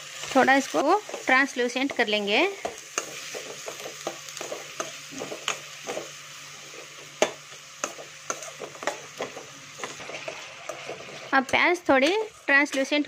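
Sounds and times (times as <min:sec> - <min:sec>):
onions sizzling in hot oil: 0:00.0 - 0:13.0
metal spoon scraping a wok: 0:02.9 - 0:13.0.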